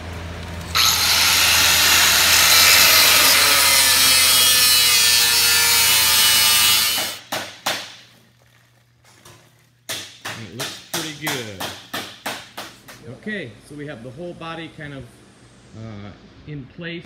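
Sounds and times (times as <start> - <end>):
angle grinder grinding steel: 0.7 - 7.2.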